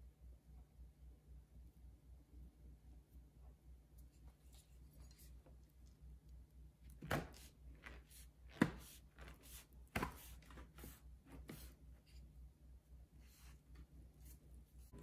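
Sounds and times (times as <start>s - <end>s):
knife chopping through pastry: 6.9s - 11.7s.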